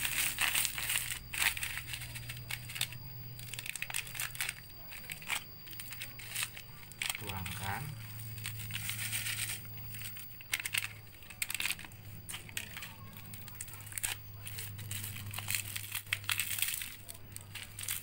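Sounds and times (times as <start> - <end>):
plastic snack packets crinkling: 0.0 - 18.0
steady low hum: 0.0 - 18.0.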